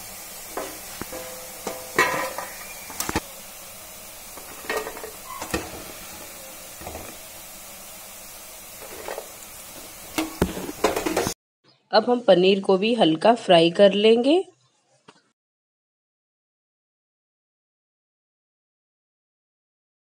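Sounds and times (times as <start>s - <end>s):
food sizzling in hot oil: 0.0s - 11.4s
steel spoon clinking on pan: 0.6s - 2.8s.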